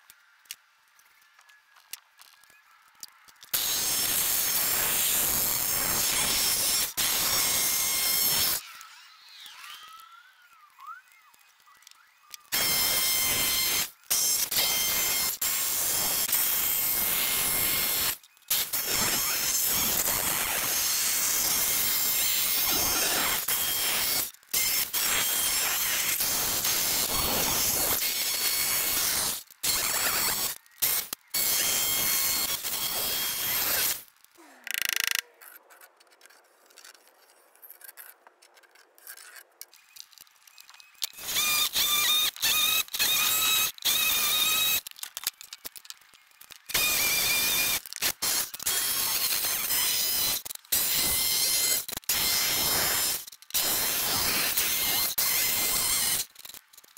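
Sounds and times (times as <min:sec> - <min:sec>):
electric drill boring into wood: 0:03.5 - 0:10.6, 0:12.4 - 0:34.1, 0:41.1 - 0:45.0, 0:46.4 - 0:56.6
electric jigsaw cutting wood: 0:03.6 - 0:10.0, 0:12.5 - 0:34.0, 0:41.2 - 0:44.8, 0:46.7 - 0:56.3.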